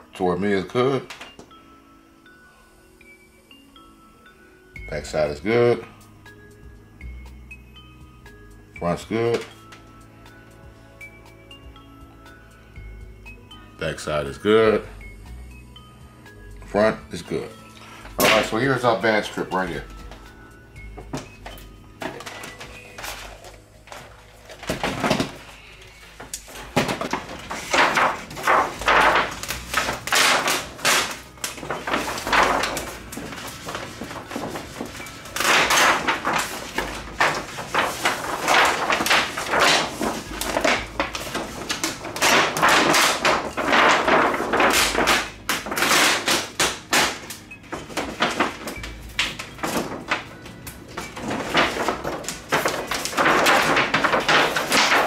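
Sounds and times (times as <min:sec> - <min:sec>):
plastic sheet rustling: 0:17.2 - 0:20.2, 0:21.0 - 0:55.0.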